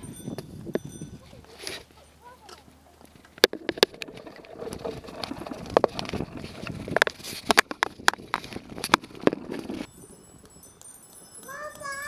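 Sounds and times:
tyres on gravel: 0:01.2 - 0:09.9
bicycle knocks and rattles: 0:03.2 - 0:09.9.

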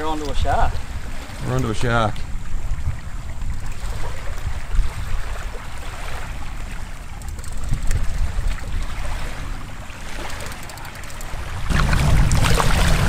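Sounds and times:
river water splashing: 0:00.0 - 0:13.0
sharp clicks: 0:07.2 - 0:08.0, 0:10.2 - 0:11.4
low rumble: 0:11.6 - 0:13.0.

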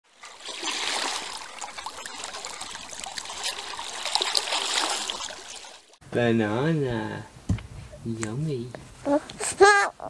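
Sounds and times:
small water splashes: 0:00.0 - 0:06.0
water lapping and trickling: 0:00.0 - 0:06.0.

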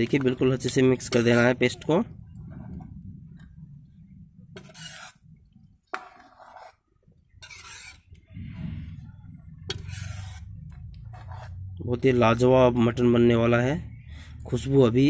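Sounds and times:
low steady rumble: 0:00.6 - 0:05.9, 0:08.0 - 0:15.0
metal ladle scraping a pot: 0:01.0 - 0:01.8, 0:04.5 - 0:05.4, 0:06.0 - 0:11.6.

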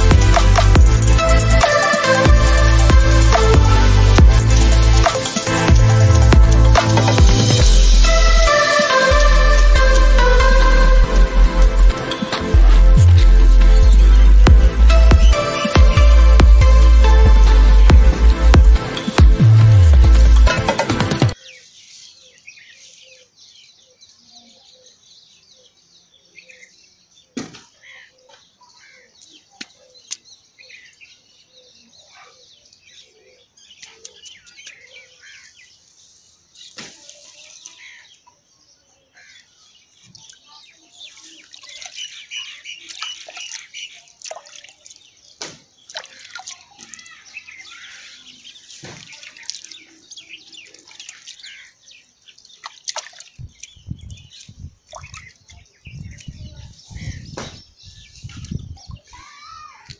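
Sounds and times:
heavy low thumps: 0:00.0 - 0:01.6, 0:02.3 - 0:08.4, 0:09.2 - 0:21.4.

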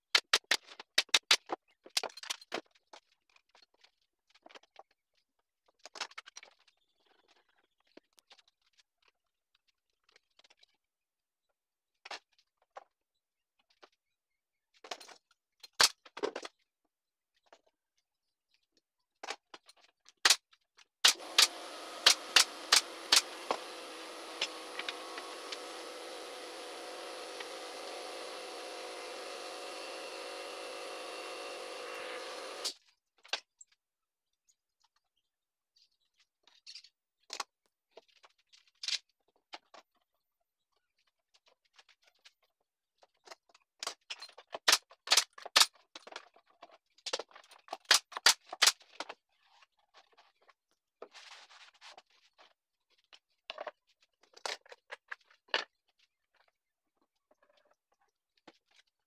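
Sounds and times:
sharp clicks: 0:21.0 - 0:25.8
air compressor running: 0:21.1 - 0:32.7.

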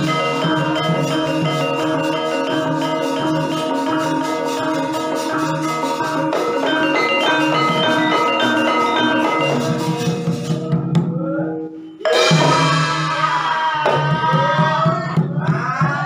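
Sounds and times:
hand drum beat: 0:00.0 - 0:11.3
bronze metallophones ringing: 0:00.0 - 0:13.3.

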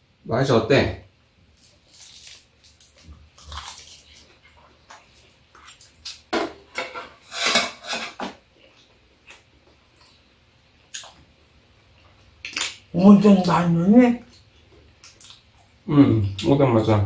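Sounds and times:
metal utensils clinking on bowls: 0:06.8 - 0:08.3.

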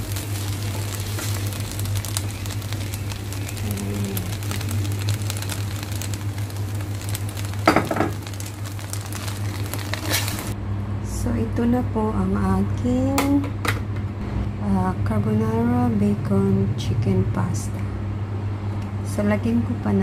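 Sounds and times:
pasta sizzling in a pot: 0:00.0 - 0:10.6
low hum: 0:00.0 - 0:13.0.

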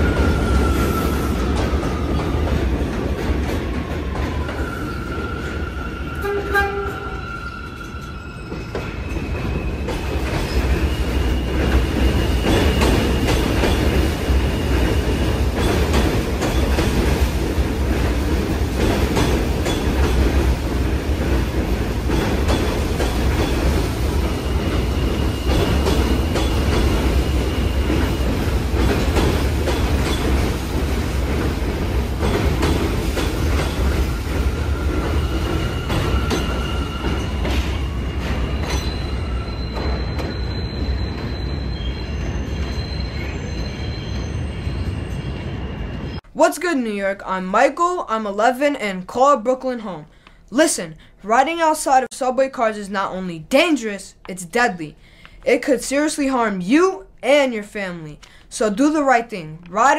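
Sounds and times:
subway train rumbling past: 0:00.0 - 0:46.3
high wheel squeal: 0:04.6 - 0:13.8, 0:24.3 - 0:28.4, 0:33.7 - 0:46.2.

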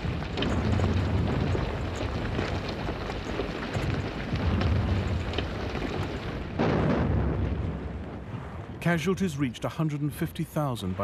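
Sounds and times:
artillery bombardment rumble: 0:00.0 - 0:09.8
crackle: 0:00.0 - 0:10.1.

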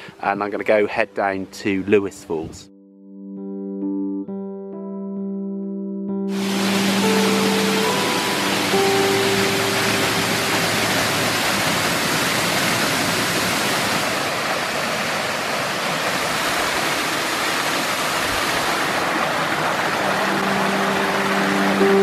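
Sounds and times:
water rushing over rocks: 0:06.3 - 0:22.0.

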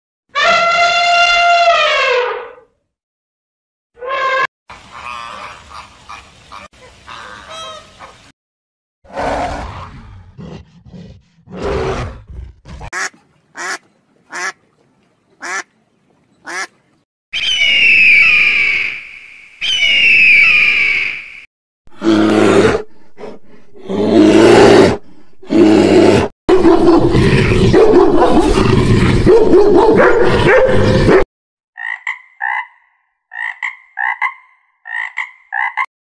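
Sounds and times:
eagle screaming: 0:00.4 - 0:02.6, 0:17.4 - 0:21.2
duck quacking: 0:12.9 - 0:14.6, 0:15.4 - 0:15.7, 0:16.4 - 0:16.7.

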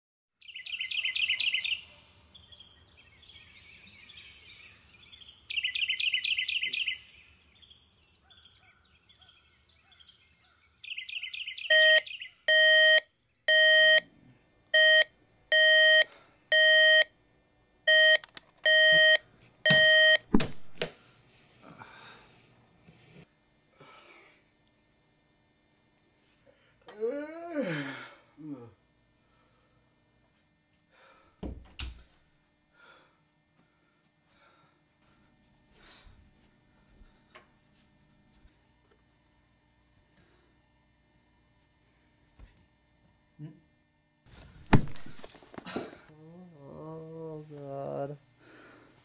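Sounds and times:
birds chirping in trills: 0:00.4 - 0:14.0
steady high hum: 0:00.4 - 0:49.0
alarm clock beeping: 0:11.7 - 0:14.0, 0:14.8 - 0:17.1, 0:17.9 - 0:20.2.

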